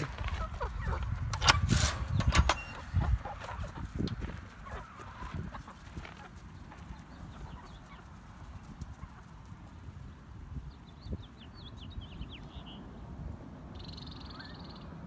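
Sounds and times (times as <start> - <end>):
hens clucking: 0.0 - 10.1
wire coop door rattling: 1.2 - 3.7.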